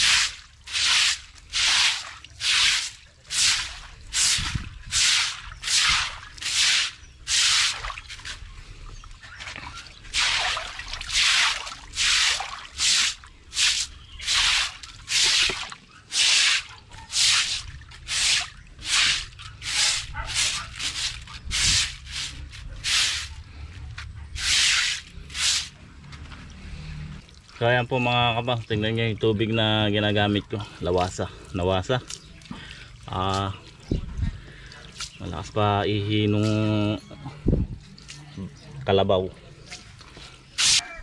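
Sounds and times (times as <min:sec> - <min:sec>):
water gushing into pool: 0:10.1 - 0:20.0.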